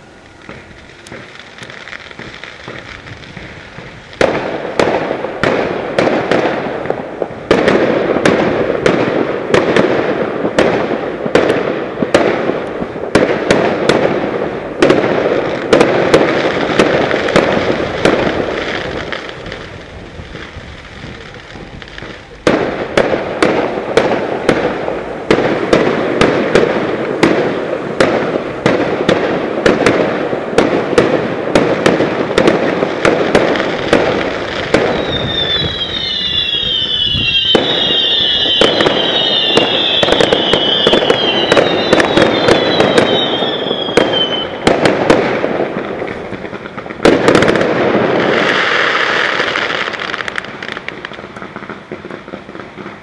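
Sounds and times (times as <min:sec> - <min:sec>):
fireworks bangs and crackling: 0:00.0 - 0:53.0
falling firework whistles: 0:32.3 - 0:45.5.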